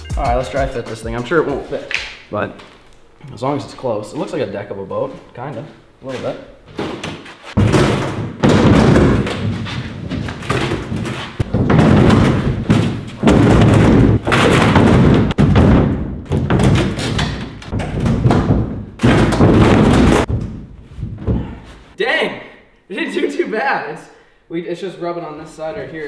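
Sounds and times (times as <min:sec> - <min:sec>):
plywood thudding against metal hull: 0:06.7 - 0:21.6.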